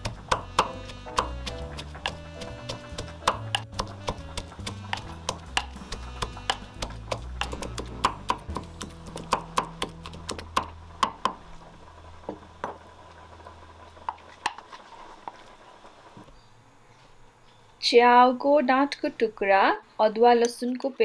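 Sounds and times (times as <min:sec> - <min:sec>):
wooden pestle pounding in mortar: 0:00.0 - 0:11.4.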